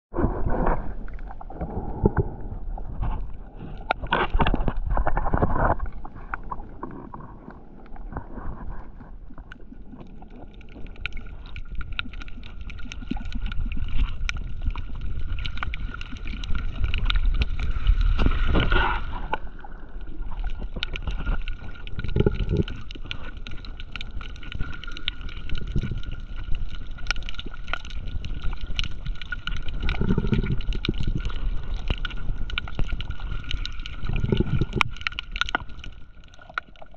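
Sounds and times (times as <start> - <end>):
low underwater rumble: 0.1 - 36.9
underwater water gurgling: 0.1 - 36.9
sharp underwater clicks: 20.4 - 36.9.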